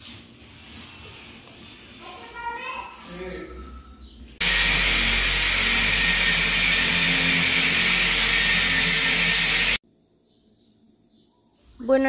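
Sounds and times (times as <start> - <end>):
electric drill boring into wall: 4.4 - 9.8.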